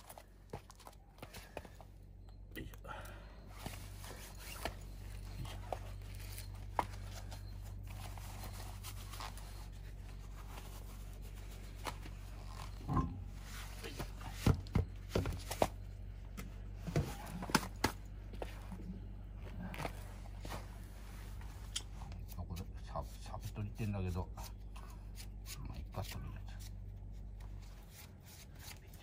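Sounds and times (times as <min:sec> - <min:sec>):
steady low hum: 0:00.0 - 0:29.0
wheel knocks and thuds: 0:12.7 - 0:13.4, 0:14.0 - 0:15.8.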